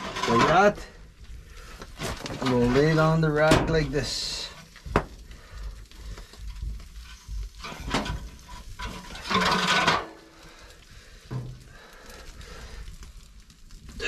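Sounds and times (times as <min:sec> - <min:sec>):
grill rack scraping metal drum: 0:00.0 - 0:01.0, 0:02.0 - 0:04.7, 0:07.0 - 0:10.6
wire grill rack clinking: 0:07.6 - 0:10.2.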